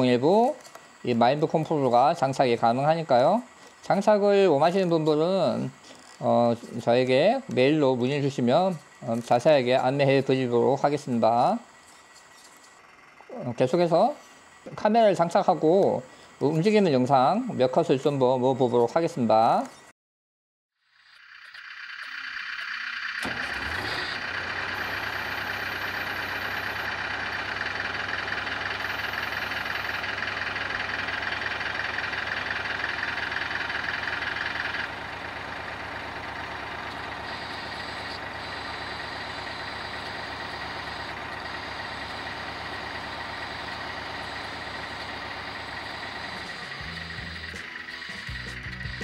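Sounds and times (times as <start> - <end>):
hydraulic pump whirring hum: 21.1 - 49.0.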